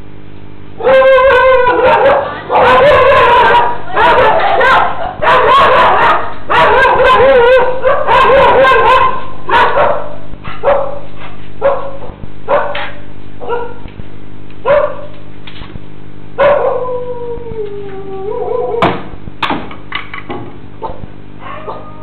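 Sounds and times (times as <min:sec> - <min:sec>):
dog barking and yelping: 0:00.8 - 0:13.8, 0:14.7 - 0:15.1, 0:16.4 - 0:17.0.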